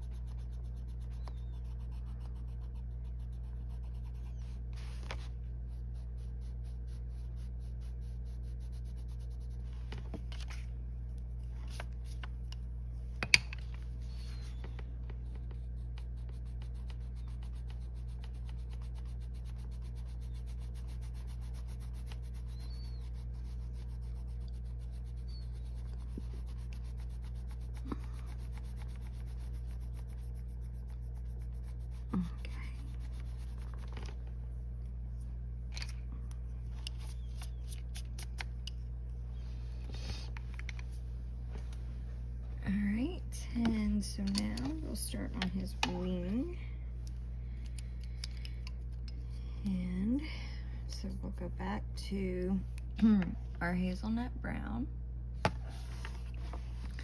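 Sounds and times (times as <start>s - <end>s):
colored pencil scratching on paper: 0.0s - 12.7s, 13.9s - 34.2s
steady low hum: 0.0s - 57.0s.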